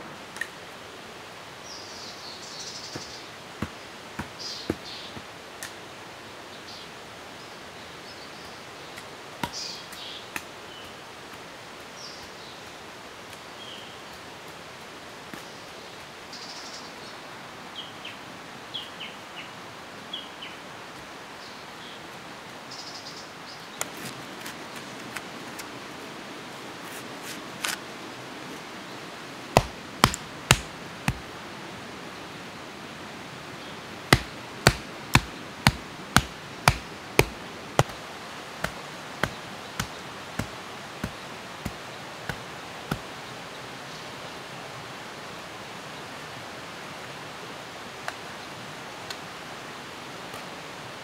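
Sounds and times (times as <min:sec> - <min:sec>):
birds chirping: 0:01.6 - 0:05.3, 0:06.5 - 0:11.2
hand tool striking stones: 0:29.6 - 0:31.2, 0:34.1 - 0:38.0, 0:38.6 - 0:43.1.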